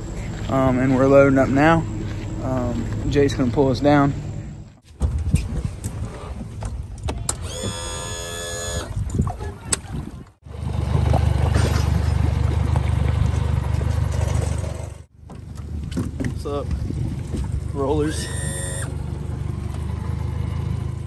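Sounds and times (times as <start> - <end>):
electric motor whining: 7.3 - 9.0, 18.1 - 19.0.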